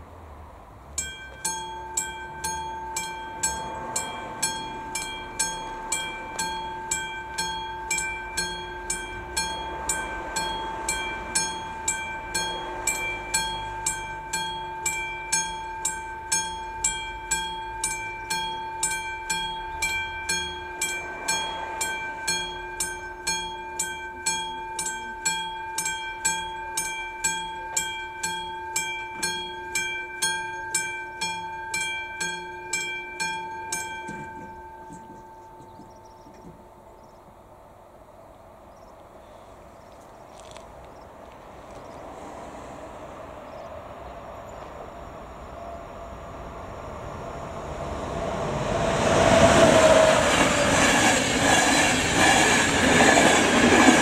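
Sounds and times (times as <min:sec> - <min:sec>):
level crossing bell ringing: 0:01.0 - 0:36.8.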